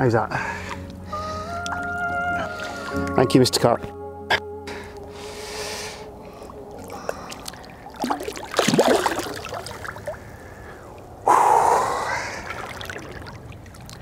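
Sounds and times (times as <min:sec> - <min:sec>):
lake water splashing: 0:05.7 - 0:14.0.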